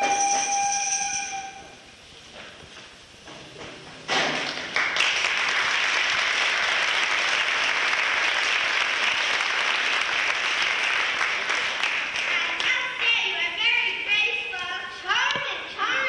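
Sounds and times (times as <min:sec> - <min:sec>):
audience applause: 0:04.4 - 0:12.8.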